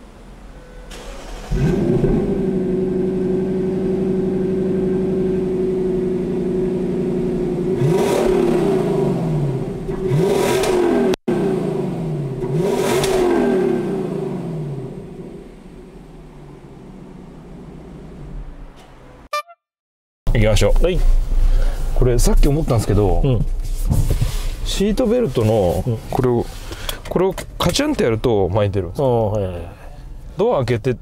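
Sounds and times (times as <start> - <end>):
car engine starting and idling: 0.0 - 19.2, 20.3 - 31.0
car engine revving: 0.9 - 19.2.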